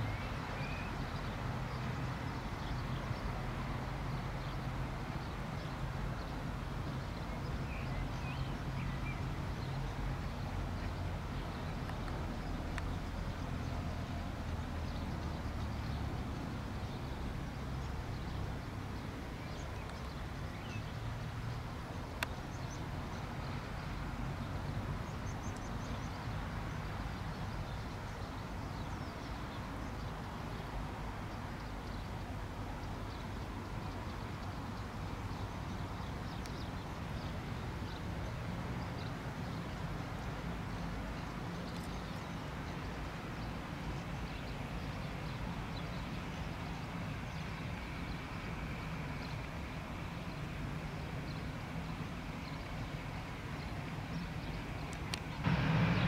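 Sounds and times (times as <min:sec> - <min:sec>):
distant jet engines rumbling: 0:47.2 - 0:56.0.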